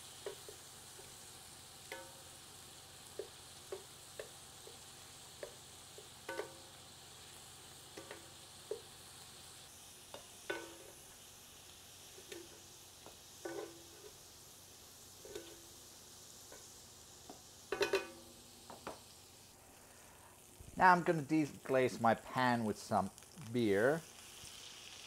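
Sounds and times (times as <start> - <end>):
faint frying sizzle: 0.0 - 25.0
metal tongs clinking on pan: 1.9 - 2.3, 6.3 - 6.8, 8.0 - 8.8, 10.1 - 11.0, 13.4 - 14.2, 15.2 - 15.7, 17.7 - 18.3.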